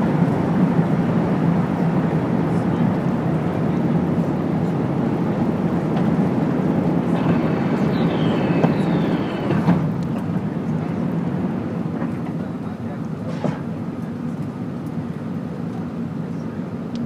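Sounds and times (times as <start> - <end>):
rushing airflow: 0.0 - 12.2
deep jet engine roar: 0.0 - 16.9.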